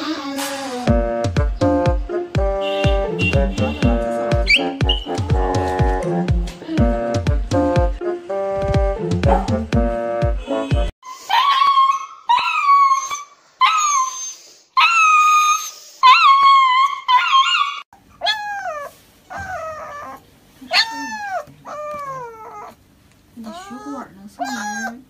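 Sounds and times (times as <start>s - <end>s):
puppy crying: 11.1s - 22.8s, 23.4s - 25.0s.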